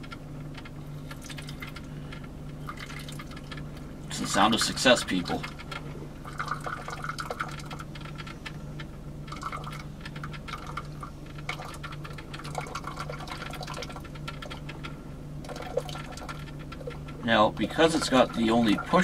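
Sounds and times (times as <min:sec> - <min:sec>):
low hum: 0:00.0 - 0:19.0
water gurgling in coffee maker: 0:00.9 - 0:02.0, 0:02.6 - 0:05.5, 0:06.2 - 0:08.3, 0:09.2 - 0:14.8, 0:15.4 - 0:19.0
coffee trickling into cup: 0:02.6 - 0:03.6, 0:06.2 - 0:08.4, 0:09.3 - 0:14.8, 0:15.4 - 0:17.1.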